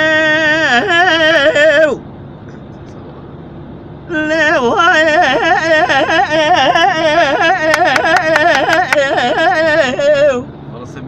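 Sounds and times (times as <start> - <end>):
elderly man singing unaccompanied: 0.0 - 2.0, 4.1 - 10.5
car cabin road noise: 0.0 - 11.0.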